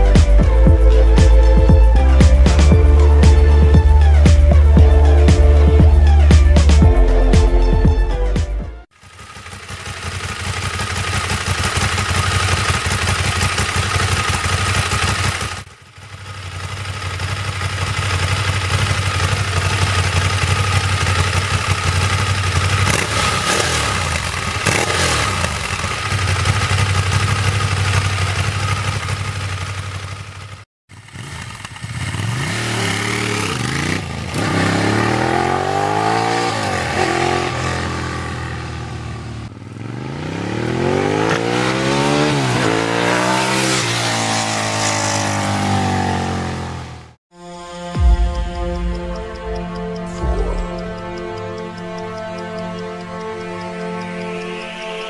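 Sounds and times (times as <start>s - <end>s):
motorcycle engine idling and revving: 0.0s - 47.2s, 47.8s - 55.0s
motorcycle accelerating through gears: 8.9s - 47.2s.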